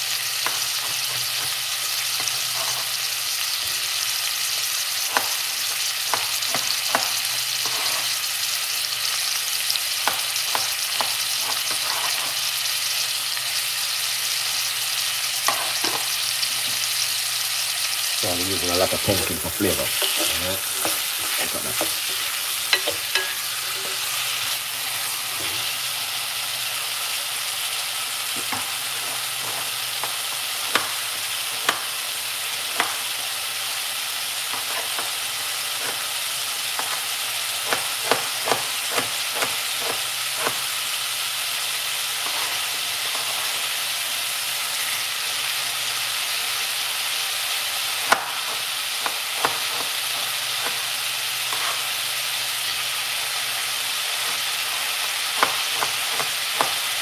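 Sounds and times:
vegetables sizzling in a pot: 0:00.0 - 0:57.0
wooden spoon stirring: 0:18.8 - 0:24.2.

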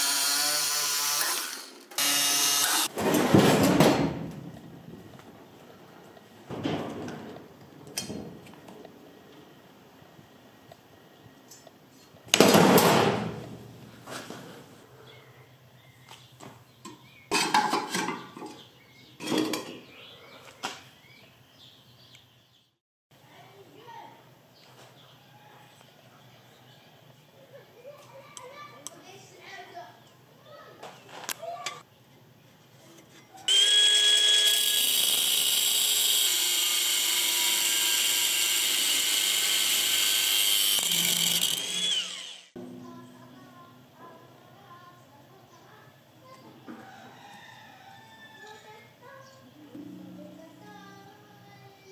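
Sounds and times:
angle grinder cutting steel: 0:00.0 - 0:02.9, 0:33.5 - 0:42.6.

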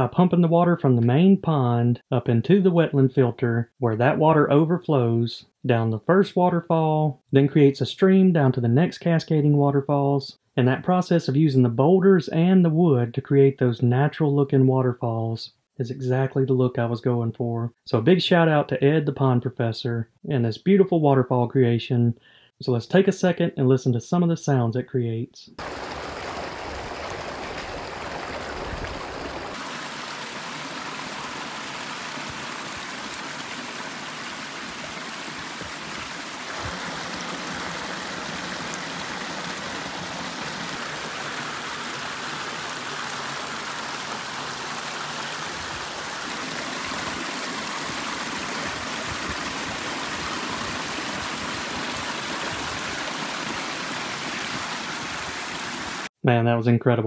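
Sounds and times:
water splashing down cascades: 0:25.6 - 0:56.1.

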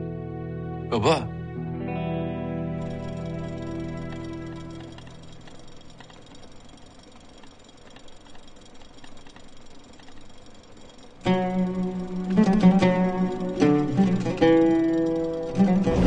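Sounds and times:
loud plucked-string music: 0:00.0 - 0:05.4, 0:11.2 - 0:16.0
background music: 0:00.0 - 0:05.6, 0:11.3 - 0:16.0
hands ticking and rustling: 0:02.9 - 0:11.5.

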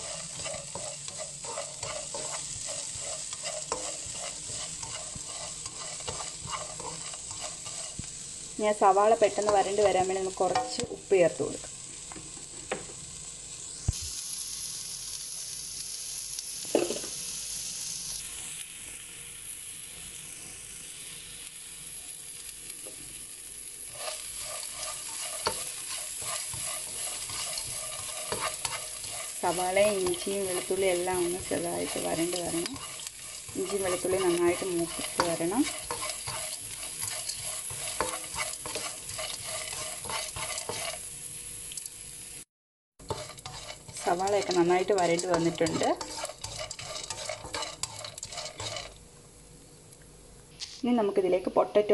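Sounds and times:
spoon scraping pan: 0:00.0 - 0:10.9, 0:23.9 - 0:41.1, 0:43.0 - 0:49.0
frying sizzle: 0:00.0 - 0:51.9.

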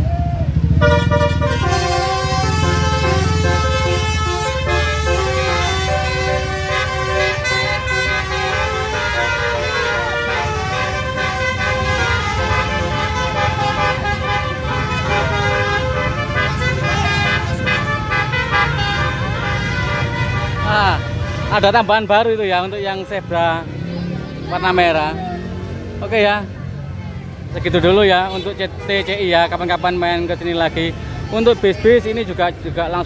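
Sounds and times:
diesel engines idling: 0:00.0 - 0:33.0
musical air horns: 0:00.7 - 0:21.6.

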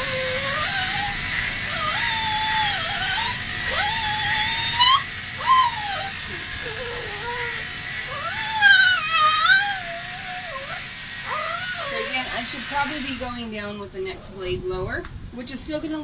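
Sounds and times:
small dog whining and yowling: 0:00.0 - 0:12.4
electric dog clippers buzzing: 0:00.0 - 0:13.8.

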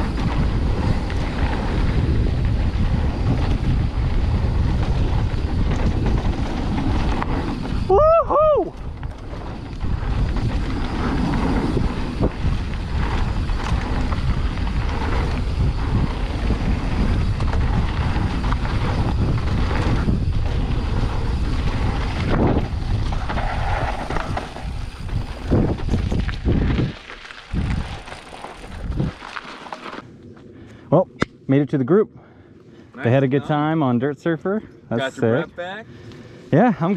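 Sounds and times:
wind buffeting the microphone: 0:00.0 - 0:29.3
bike tyre and trail noise: 0:00.0 - 0:36.9.

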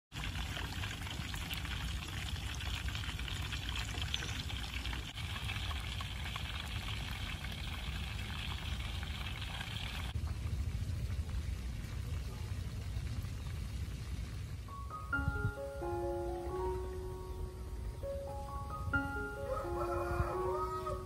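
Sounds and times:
fish deep-frying in oil: 0:00.1 - 0:14.7.

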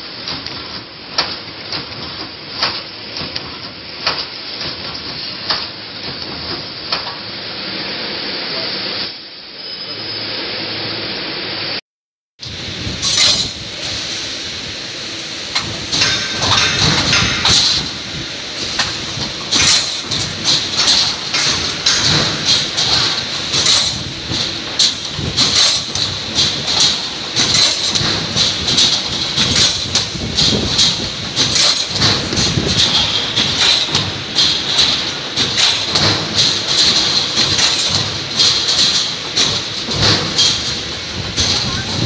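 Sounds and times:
welding machine clanking: 0:12.4 - 0:42.0.

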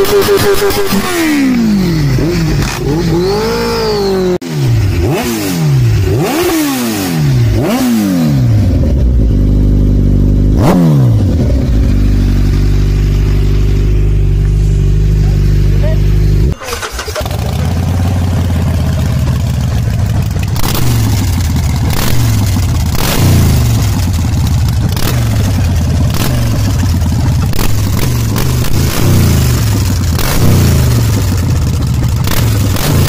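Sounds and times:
motorcycle engine idling: 0:08.3 - 0:33.0
motorcycle throttle blips: 0:08.7 - 0:33.0.

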